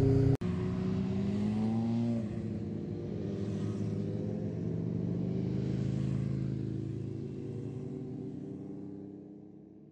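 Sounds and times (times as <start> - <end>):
motorcycle engine running: 0.0 - 0.4.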